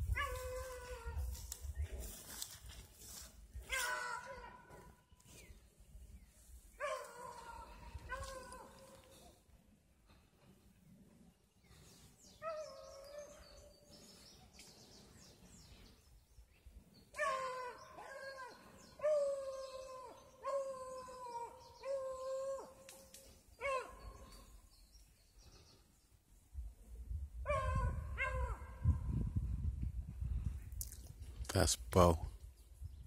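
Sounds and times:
hounds baying: 6.8 - 9.3, 17.1 - 22.9, 23.6 - 24.5.

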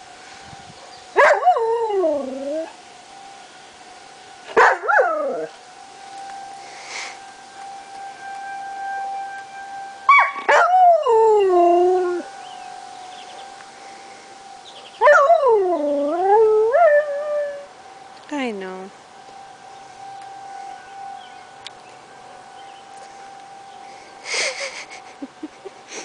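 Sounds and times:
distant warning siren: 0.0 - 26.0
dog howling: 4.6 - 5.5, 10.1 - 12.3, 14.8 - 17.7.

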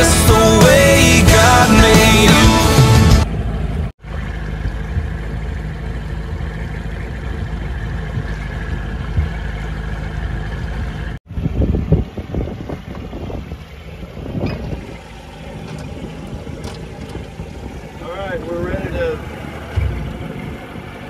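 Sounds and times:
outboard motor running: 0.0 - 21.0
water noise: 0.0 - 21.0
gusting rumble: 7.0 - 21.0
wind noise: 11.3 - 19.2, 19.8 - 21.0.

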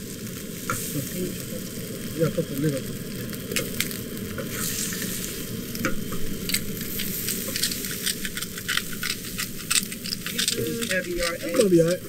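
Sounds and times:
eggs sizzling in a frying pan: 0.0 - 12.0
metal turner scraping a pan: 4.4 - 5.3, 6.4 - 12.0.

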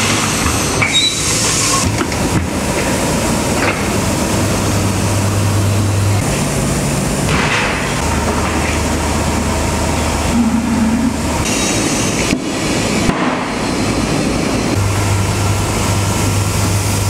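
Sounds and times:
loud mechanical noise: 0.0 - 17.0
motor hum: 4.5 - 11.6.

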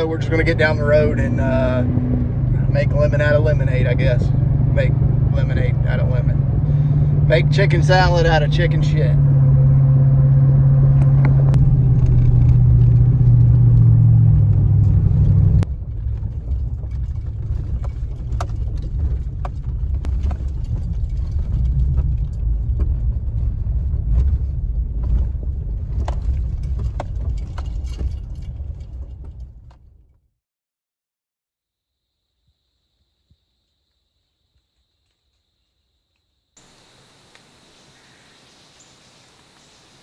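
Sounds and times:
truck engine and road drone: 0.0 - 30.2
tyres rolling over gravel: 15.7 - 29.6.

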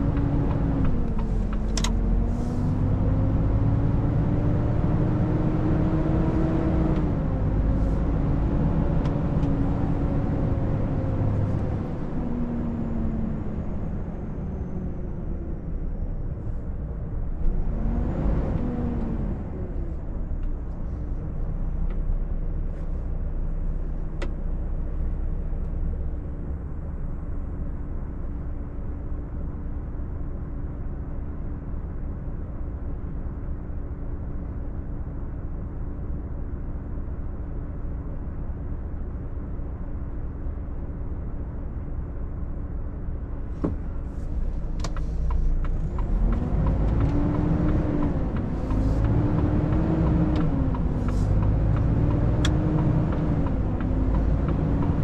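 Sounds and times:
diesel truck engine running: 0.0 - 55.0.

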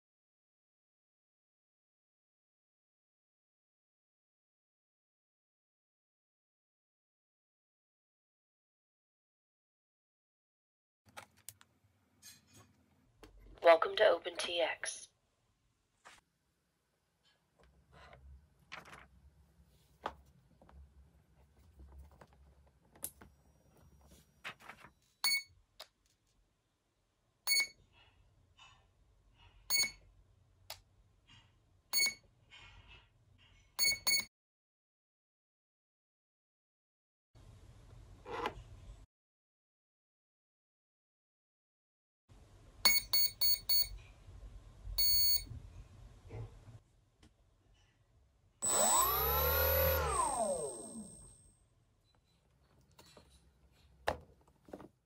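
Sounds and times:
short beeps from motor: 27.5 - 27.8, 29.7 - 30.0, 31.9 - 32.2, 33.8 - 34.3, 42.9 - 43.9, 45.0 - 45.5
motor spinning propeller: 48.6 - 51.3.

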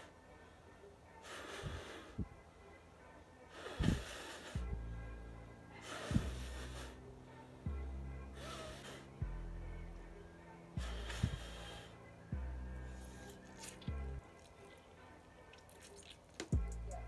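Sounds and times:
background music with low bass: 0.0 - 17.0
noodles being slurped: 13.1 - 14.7, 15.4 - 16.5.

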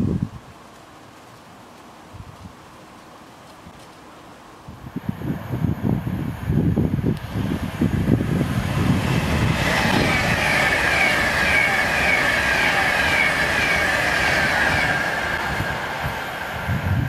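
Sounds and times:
train wheel and rail noise: 3.4 - 17.0
high wavering whine: 5.0 - 17.0.

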